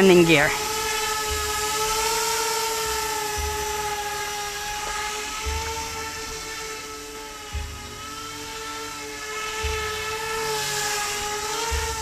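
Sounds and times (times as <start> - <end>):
electric rotors whining: 0.0 - 12.0.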